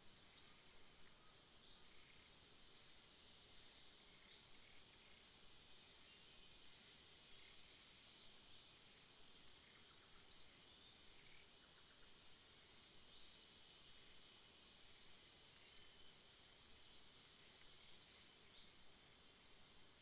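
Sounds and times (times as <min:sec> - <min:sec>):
faint steady hiss: 0:00.0 - 0:20.0
bird chirping: 0:18.0 - 0:18.7.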